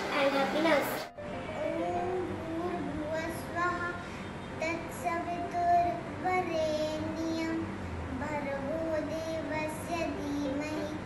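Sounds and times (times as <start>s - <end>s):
child singing: 1.6s - 4.0s, 4.6s - 11.0s.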